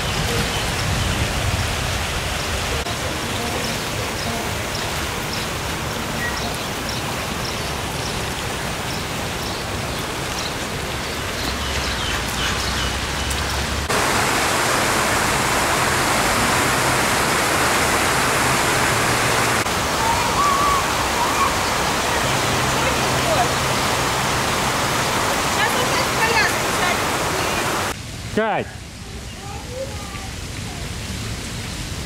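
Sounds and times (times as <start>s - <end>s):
steady outdoor rushing noise: 0.0s - 32.0s.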